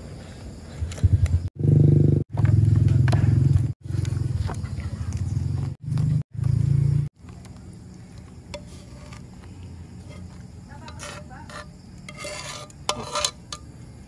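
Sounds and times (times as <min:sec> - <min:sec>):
metal spatula scraping pan: 0:08.5 - 0:09.2, 0:10.0 - 0:13.7.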